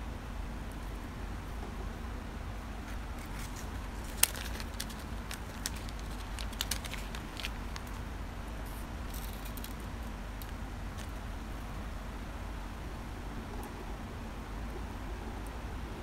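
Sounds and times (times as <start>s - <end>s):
plastic bag crinkling: 2.8s - 8.1s, 8.7s - 11.2s
small plastic parts clicking: 2.9s - 8.0s, 8.7s - 11.2s.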